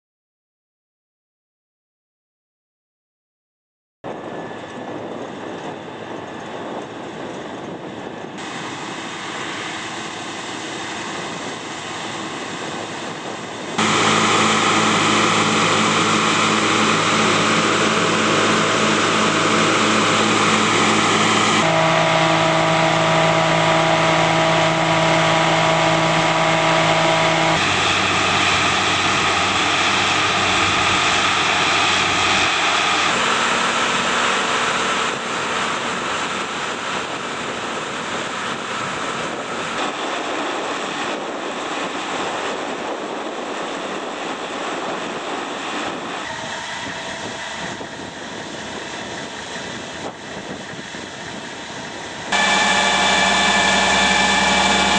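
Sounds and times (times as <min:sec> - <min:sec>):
machinery hum: 0:04.1 - 0:37.2, 0:45.8 - 0:54.9.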